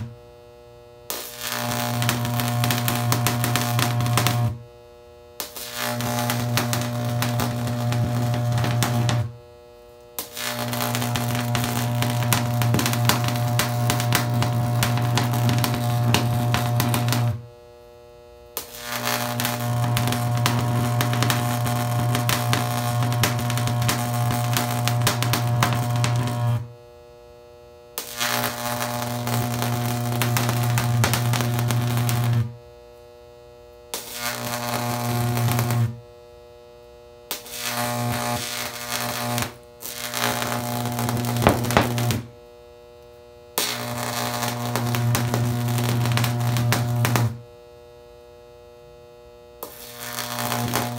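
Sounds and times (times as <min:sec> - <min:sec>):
electric arc buzzing and crackling: 0:00.0 - 0:50.9
mains hum: 0:00.0 - 0:50.9
sharp click of arc striking: 0:18.6 - 0:18.9, 0:41.3 - 0:42.3.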